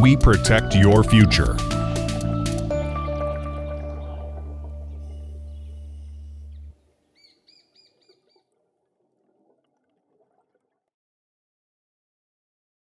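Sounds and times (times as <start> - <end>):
faint bird chirps: 3.8 - 8.5.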